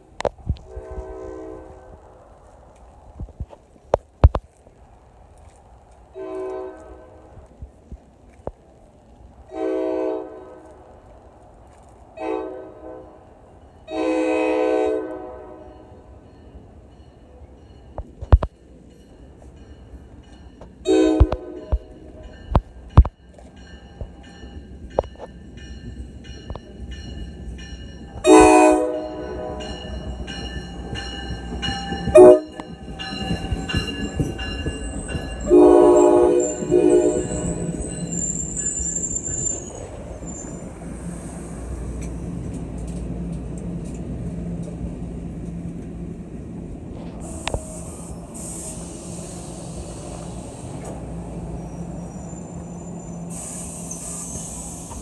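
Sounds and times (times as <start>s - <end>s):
train coaches rumbling past: 0.0s - 55.0s
train horn blasts: 0.7s - 2.1s, 6.2s - 7.4s, 9.5s - 10.7s, 12.2s - 15.9s, 20.8s - 22.0s, 28.2s - 30.1s, 32.1s - 32.8s, 35.4s - 37.8s
crossing bell ringing: 15.5s - 40.7s
high wheel squeal: 32.6s - 40.7s, 51.4s - 55.0s.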